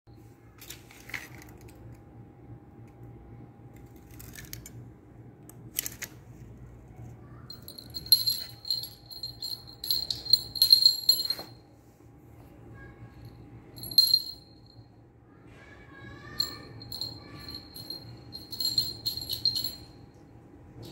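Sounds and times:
jingle bell jingling: 7.5s - 11.6s, 13.8s - 14.8s, 16.3s - 20.1s.

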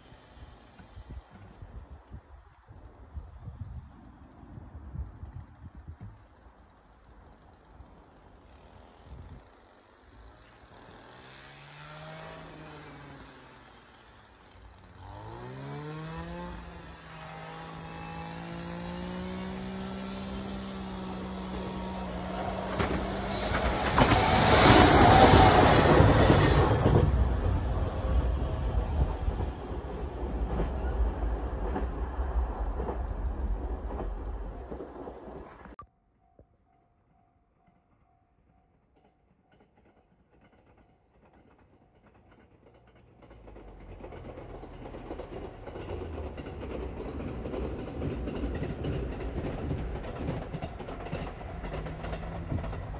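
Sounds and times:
train drive hum: 0.0s - 35.8s, 37.6s - 52.9s
wheels knocking on track: 14.9s - 35.7s, 39.5s - 52.9s.

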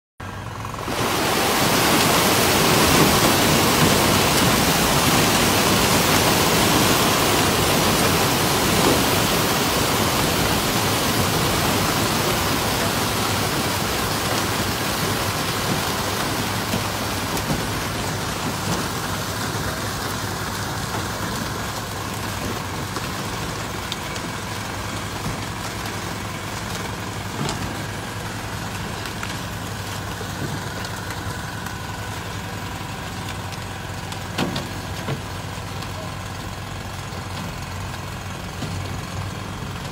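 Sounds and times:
boat engine hum: 0.2s - 39.9s
fish splashing: 0.8s - 31.9s.

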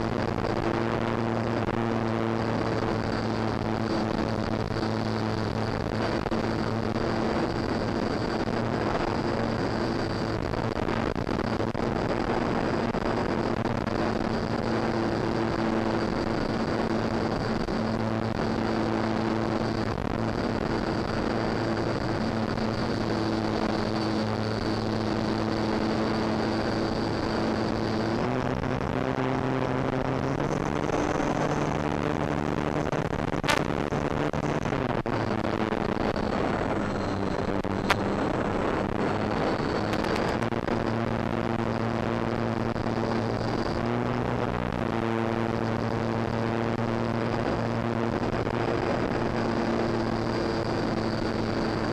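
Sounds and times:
wind rush: 30.2s - 44.9s.

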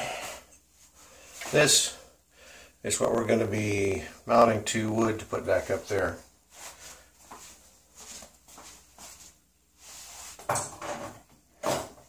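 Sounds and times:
glass shelf clinking and rattling: 10.5s - 12.0s.

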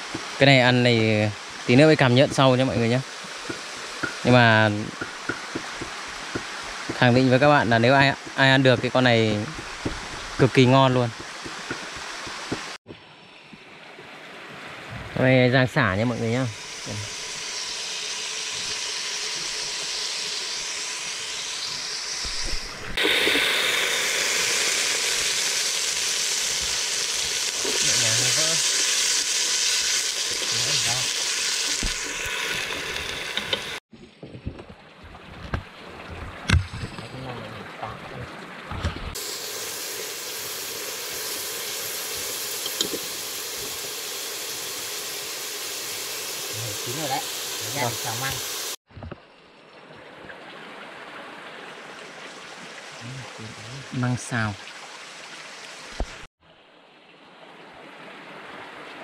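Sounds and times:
food sizzling in a hot pan: 16.2s - 33.8s, 39.2s - 48.8s.

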